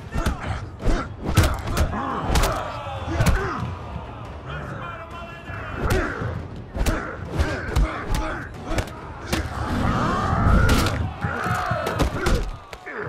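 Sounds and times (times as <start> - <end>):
fighters grunting and shouting: 0.0 - 13.0.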